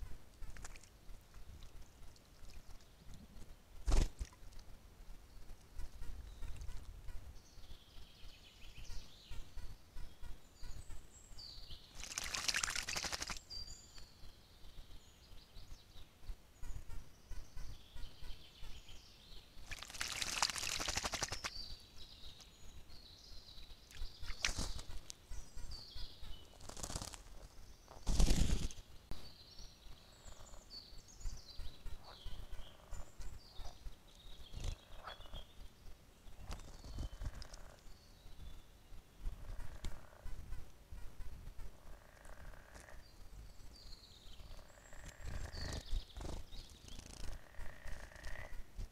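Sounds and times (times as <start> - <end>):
songbirds chirping and singing: 5.3 - 48.6
bird splashing in water: 12.0 - 13.4, 19.7 - 21.5.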